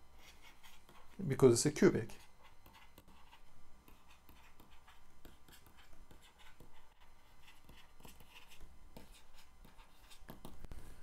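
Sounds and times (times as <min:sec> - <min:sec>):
stylus tapping and scratching: 0:02.2 - 0:10.8.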